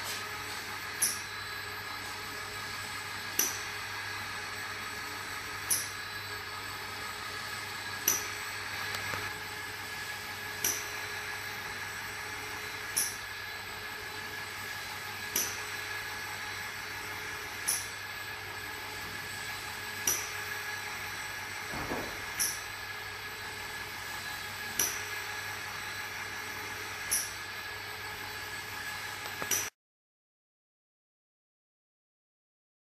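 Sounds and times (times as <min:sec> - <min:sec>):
polishing machine whine and hum: 0:00.0 - 0:29.6.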